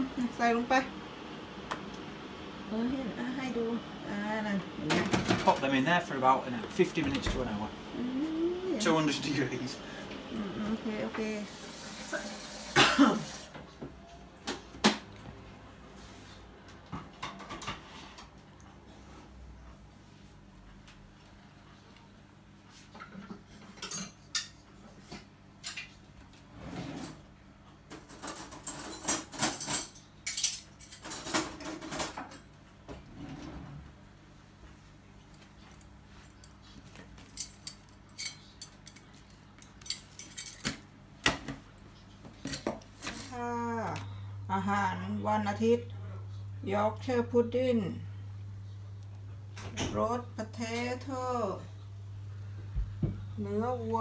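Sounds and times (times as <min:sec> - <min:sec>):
low steady hum: 0:00.0 - 0:54.0
dishes and utensils clattering: 0:27.9 - 0:32.5, 0:36.4 - 0:41.6.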